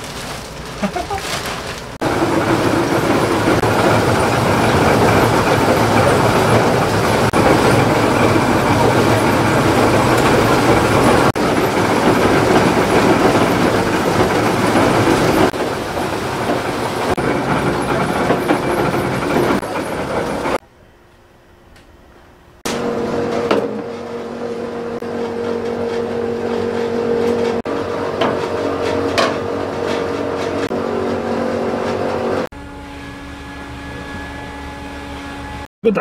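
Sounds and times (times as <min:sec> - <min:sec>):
electric mill grinding chilies: 0:02.0 - 0:20.6.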